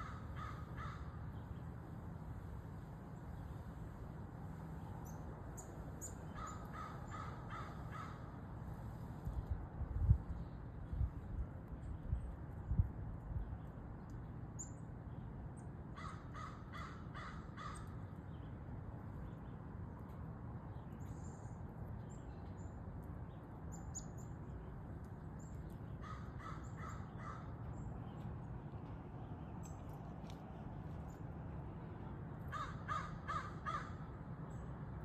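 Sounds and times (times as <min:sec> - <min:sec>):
crow cawing: 0:00.0 - 0:01.2, 0:06.3 - 0:08.3, 0:16.0 - 0:17.9, 0:26.0 - 0:27.6, 0:32.5 - 0:34.1
small birds chirping: 0:20.6 - 0:31.3.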